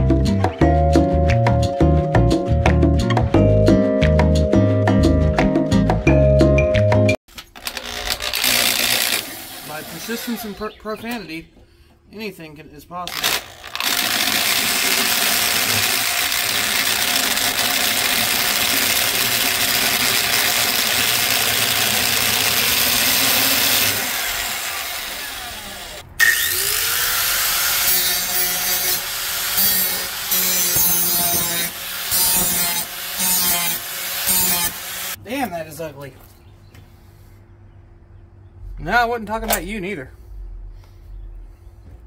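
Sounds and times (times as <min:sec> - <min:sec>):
electric drill drilling metal: 0:07.6 - 0:10.7, 0:13.1 - 0:35.2
angle grinder grinding metal: 0:07.6 - 0:11.3, 0:13.0 - 0:35.2.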